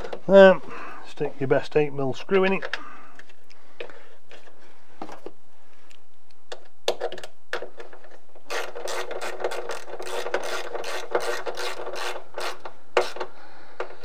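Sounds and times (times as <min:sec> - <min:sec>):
hand ratchet clicking: 0:08.5 - 0:13.3.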